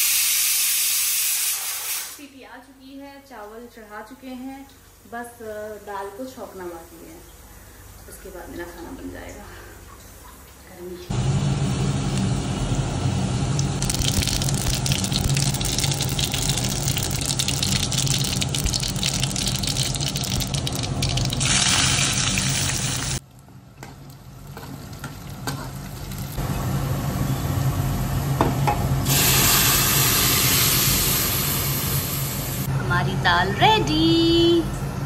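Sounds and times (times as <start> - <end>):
hot oil sizzling: 11.2 - 23.2, 24.1 - 26.5, 29.0 - 32.7.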